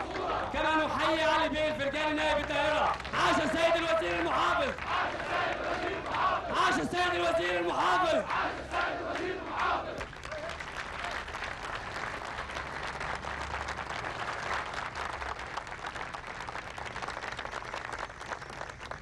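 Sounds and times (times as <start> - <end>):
crowd applauding: 0.0 - 19.0.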